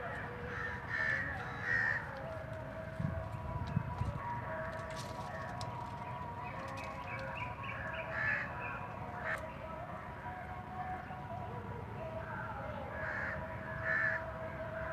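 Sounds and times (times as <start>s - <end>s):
birds calling: 0.0s - 2.8s, 4.8s - 9.8s.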